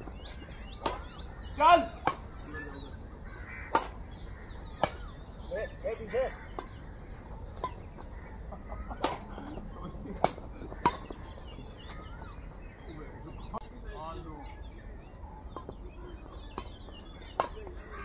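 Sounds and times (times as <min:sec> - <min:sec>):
birds chirping: 0:00.0 - 0:18.0
rackets striking shuttlecock: 0:00.6 - 0:01.3, 0:02.0 - 0:02.4, 0:03.7 - 0:05.3, 0:06.5 - 0:06.9, 0:07.5 - 0:08.1, 0:08.9 - 0:11.4, 0:15.5 - 0:17.8.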